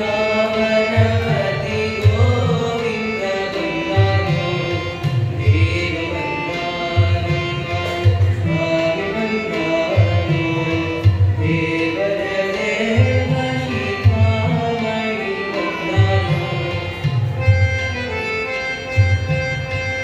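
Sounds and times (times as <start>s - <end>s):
man singing: 0.0s - 17.2s
electronic keyboard: 13.8s - 20.0s.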